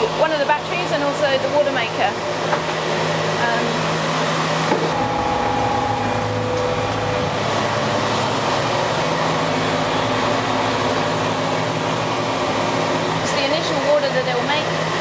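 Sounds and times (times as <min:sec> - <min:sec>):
diesel engine droning: 0:04.9 - 0:15.0.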